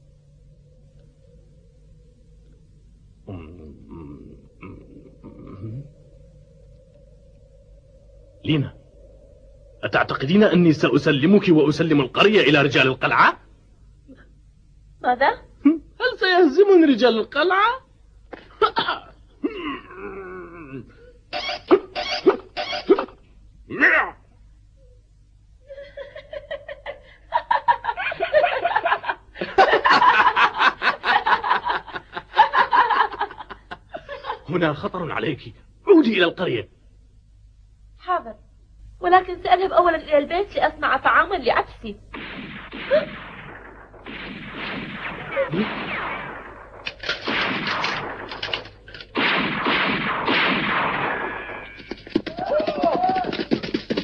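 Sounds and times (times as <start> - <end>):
man laughing: 25.8 - 34.5
rapid gunfire bursts: 42.2 - 54.0.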